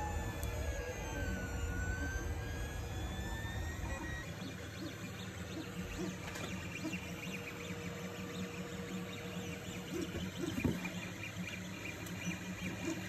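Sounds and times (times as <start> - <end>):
fan hum: 0.0 - 13.0
stepper motors whining: 0.0 - 13.0.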